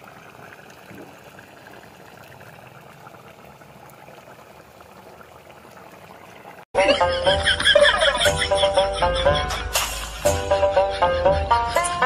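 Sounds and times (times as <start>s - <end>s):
curry simmering with bubbling hiss: 0.0s - 6.7s.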